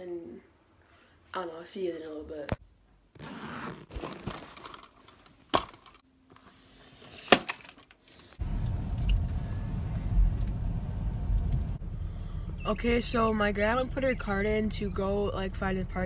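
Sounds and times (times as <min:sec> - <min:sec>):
car driving from inside cabin: 0:08.4 - 0:16.0.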